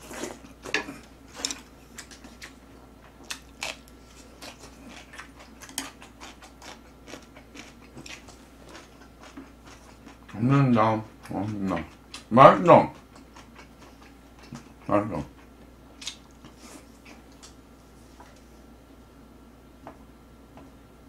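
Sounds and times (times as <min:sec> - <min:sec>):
person chewing: 0:00.0 - 0:10.5, 0:12.9 - 0:17.6.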